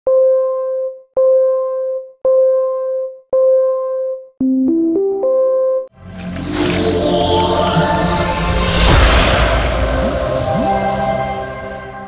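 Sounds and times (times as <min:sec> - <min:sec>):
electronic keyboard jingle: 0:04.4 - 0:09.4.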